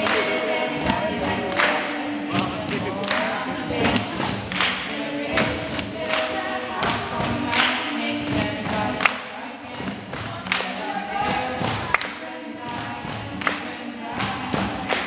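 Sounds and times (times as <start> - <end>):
woman singing into microphone: 0.0 - 15.0.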